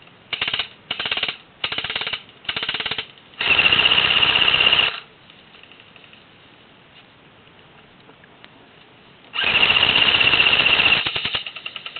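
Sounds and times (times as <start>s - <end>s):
airsoft gun rapid fire: 0.3s - 5.0s, 9.4s - 11.9s.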